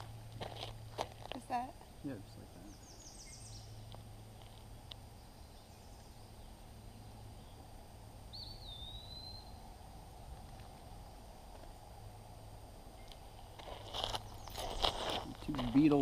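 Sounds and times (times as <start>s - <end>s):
faint background noise: 0.0s - 16.0s
bird whistling call: 8.3s - 9.6s.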